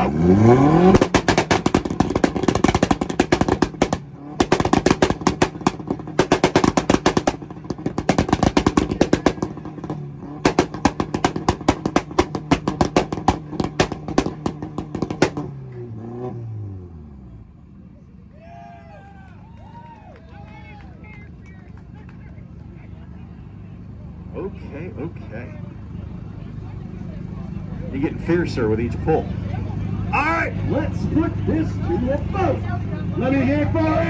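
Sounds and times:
car engine revving on limiter: 0.0 - 17.3
exhaust pops and bangs: 0.8 - 15.6.

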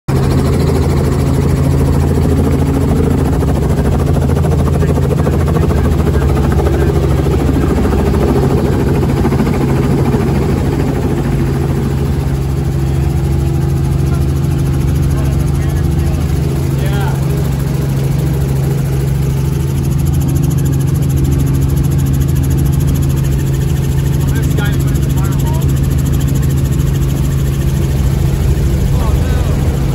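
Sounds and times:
helicopter engine and rotors droning: 0.1 - 29.9.

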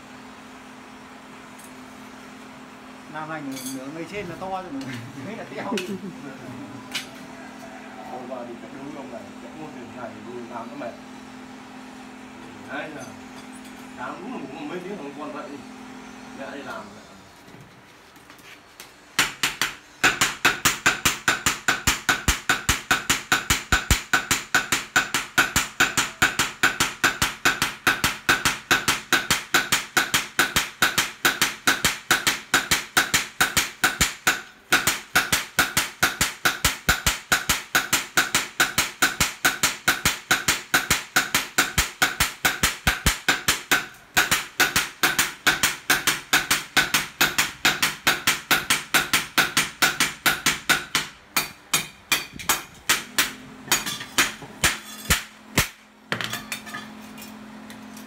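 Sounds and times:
hammers clanking on metal: 19.2 - 56.9.

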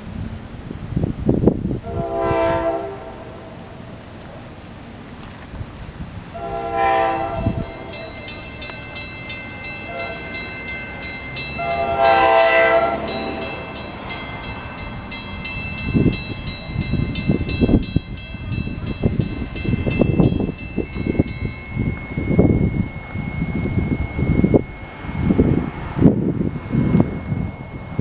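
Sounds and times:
wind buffeting microphone: 0.0 - 28.0
locomotive air horn blasts: 1.8 - 3.9, 6.4 - 8.2, 9.8 - 10.6, 11.5 - 14.2
crossing bell ringing: 6.4 - 28.0.

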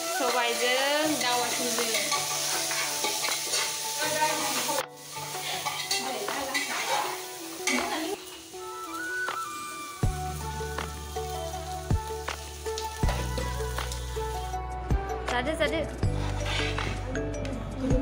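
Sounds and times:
food sizzling in a pot: 0.0 - 14.6, 16.1 - 17.0.

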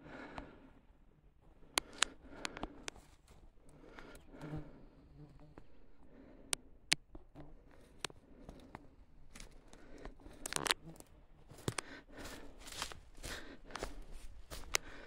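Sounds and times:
twigs cracking underfoot: 1.6 - 4.5, 6.9 - 15.0
footsteps crunching on forest floor: 3.0 - 4.1, 7.7 - 15.0.

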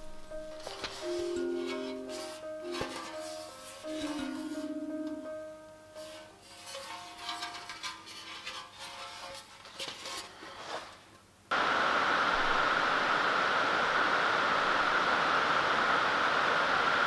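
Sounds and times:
steady even hiss: 0.0 - 7.6, 10.1 - 17.0
faint rubbing and handling: 0.5 - 4.8, 6.0 - 11.2.

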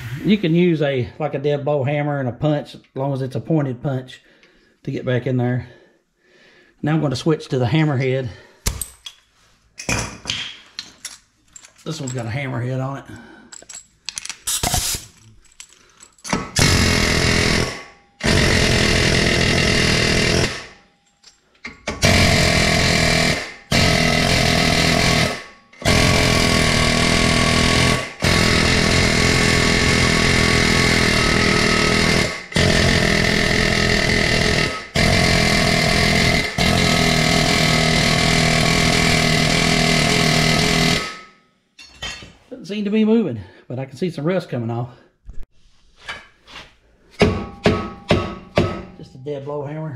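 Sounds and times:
pneumatic air hammer pounding metal: 14.5 - 15.0, 16.3 - 20.9, 21.7 - 41.3, 47.2 - 49.0.

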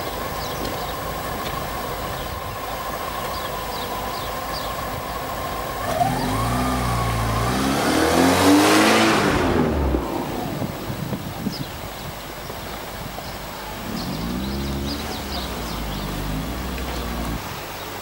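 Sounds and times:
outdoor hiss: 0.0 - 18.0
car accelerating and passing: 5.8 - 11.2, 13.8 - 17.5.

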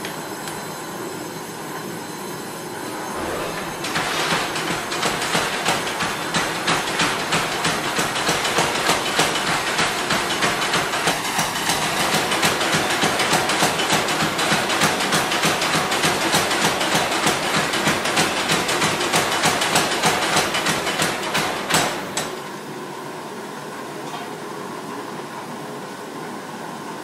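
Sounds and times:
steady whooshing noise: 2.9 - 4.9
power hammer pounding steel: 3.2 - 22.3.

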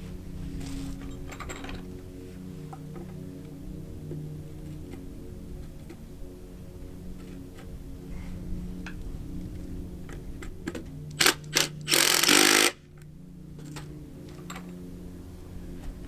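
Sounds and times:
cordless drill driving fastener: 11.2 - 12.8.

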